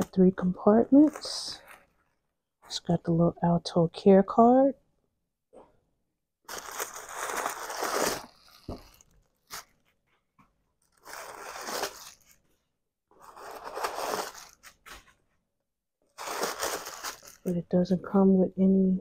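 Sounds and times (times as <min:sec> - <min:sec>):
tissue paper crinkling: 0:01.0 - 0:02.2, 0:06.5 - 0:09.9, 0:10.8 - 0:12.6, 0:13.2 - 0:15.2, 0:16.2 - 0:17.5.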